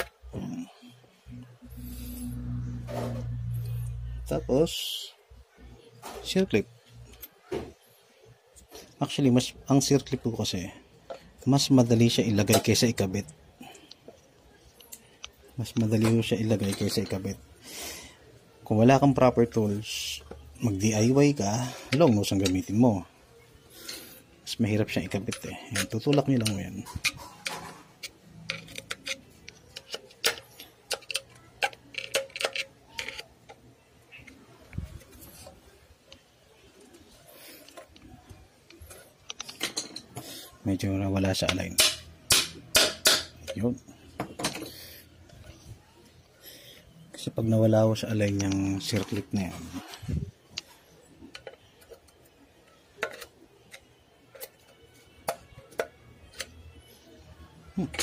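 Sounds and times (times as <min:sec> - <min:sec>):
pliers clicking on metal: 0:25.0 - 0:33.3.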